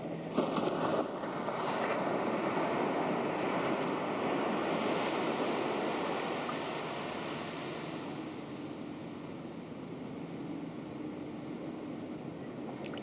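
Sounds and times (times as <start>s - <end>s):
ocean surf on beach: 0.0s - 13.0s.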